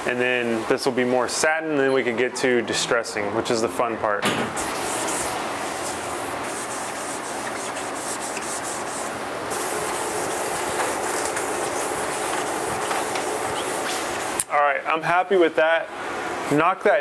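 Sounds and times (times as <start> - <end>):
scuff pad rubbing on wood: 4.6 - 14.3.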